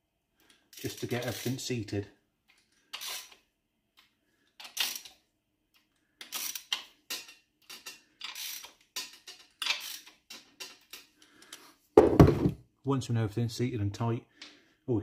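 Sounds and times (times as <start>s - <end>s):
ratchet wrench clicking: 0.7s - 1.5s, 2.9s - 3.4s, 4.6s - 5.1s, 6.2s - 11.1s.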